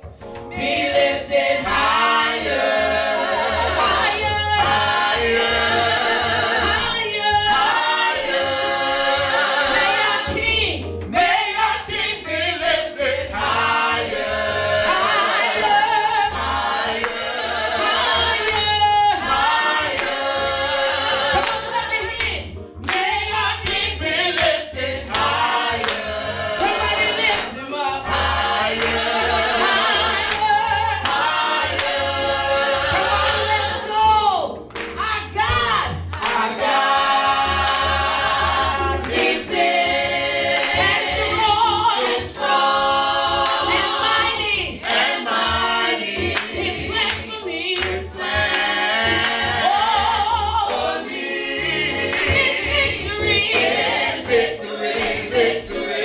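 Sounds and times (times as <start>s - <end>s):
man and woman singing: 0.6s - 17.0s, 22.9s - 34.2s.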